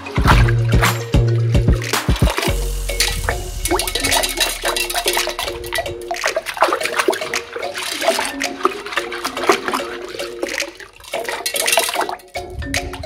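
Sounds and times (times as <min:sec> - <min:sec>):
hand swishing through water: 0:01.8 - 0:12.1
candies plopping into water: 0:01.8 - 0:13.0.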